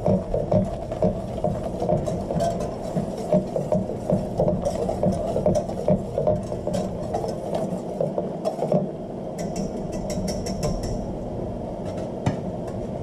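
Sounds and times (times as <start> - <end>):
steady low hum: 0.0 - 13.0
utensil scraping metal saucepan: 1.2 - 8.6.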